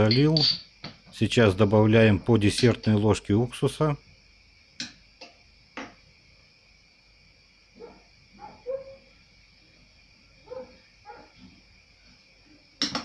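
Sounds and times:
metal spoon clinking on glass jar: 0.0 - 0.7.

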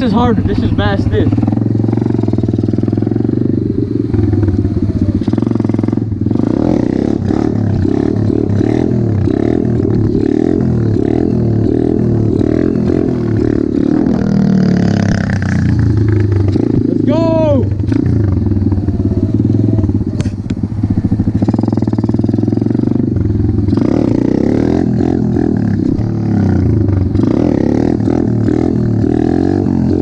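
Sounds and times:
motorbike engine revving: 0.0 - 30.0.

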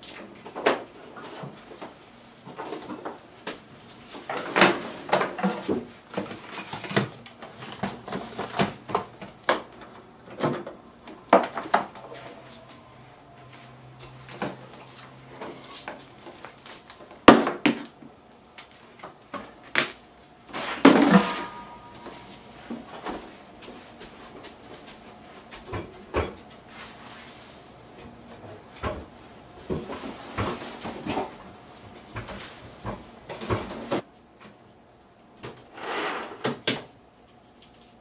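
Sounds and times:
low steady hum: 17.9 - 35.4
kitchen objects knocking and clattering: 20.8 - 22.3.

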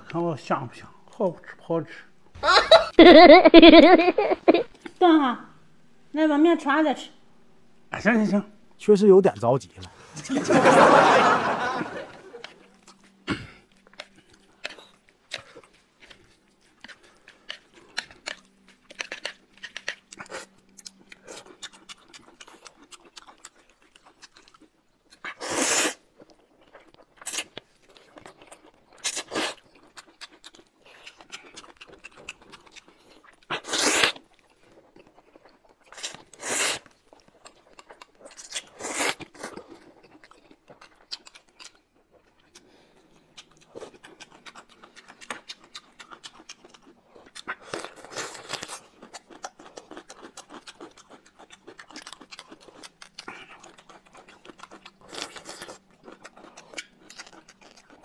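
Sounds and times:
chewing and smacking: 12.1 - 58.0
slurping noodles: 25.3 - 26.0, 33.5 - 34.2, 36.0 - 36.9.

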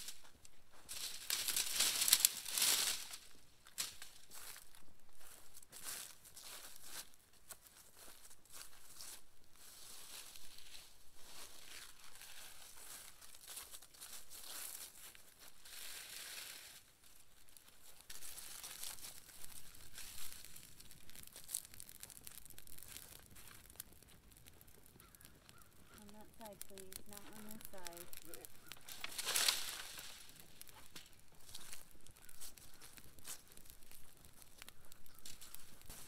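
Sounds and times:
dry leaves crackling in fire: 0.0 - 36.0.

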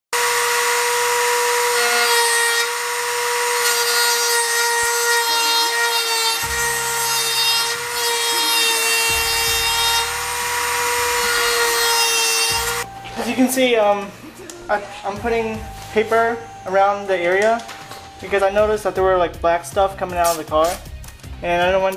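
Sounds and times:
rotary tool cutting sheet metal: 0.2 - 12.8.

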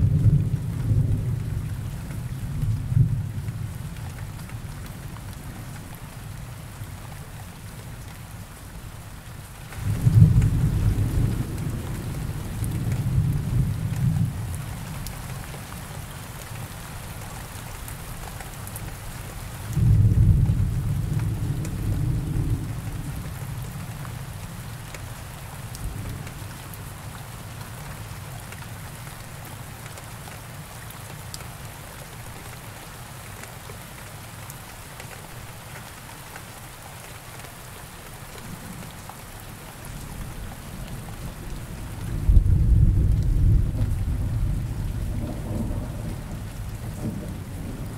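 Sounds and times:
low rolls of thunder: 0.0 - 3.9, 9.8 - 15.0, 19.7 - 23.7, 40.0 - 47.9
rain hissing: 37.9 - 47.9.

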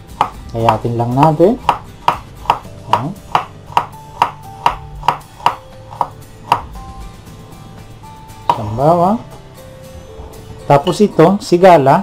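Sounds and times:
knife chopping on cutting board: 0.1 - 0.8, 1.6 - 6.8.

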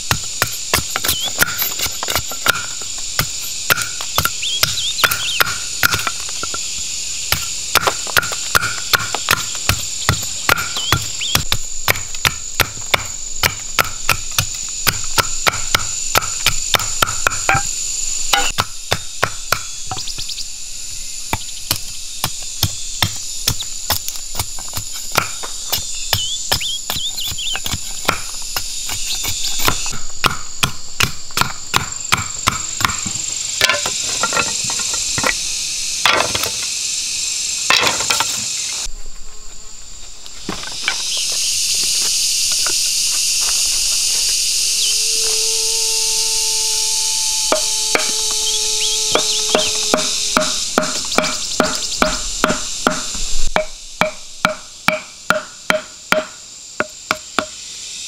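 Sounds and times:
machete chopping bamboo: 0.0 - 6.6, 7.3 - 17.7, 18.4 - 20.0, 21.3 - 34.4, 50.8 - 57.5
insects buzzing: 0.0 - 58.0.

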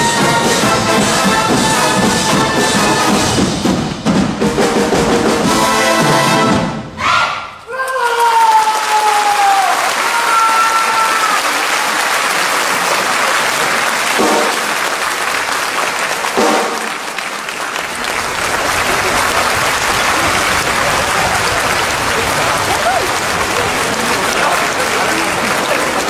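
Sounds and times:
high-pitched shouts: 7.0 - 11.6
audience applauding: 7.7 - 26.0.

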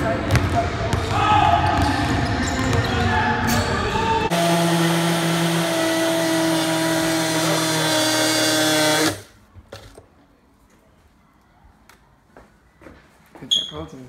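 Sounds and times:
blender motor whirring: 4.3 - 9.3.

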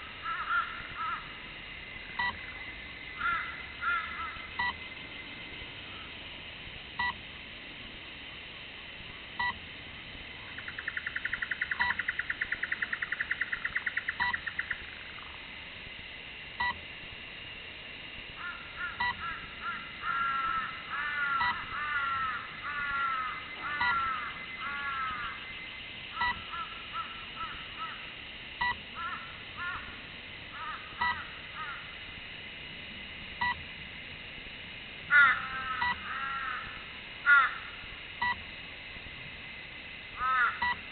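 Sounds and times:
birds calling: 0.2 - 1.2, 2.2 - 5.1, 10.6 - 15.3, 18.4 - 28.0, 29.0 - 29.9, 35.1 - 36.7, 40.2 - 40.8
fast bird trill: 10.6 - 14.8.

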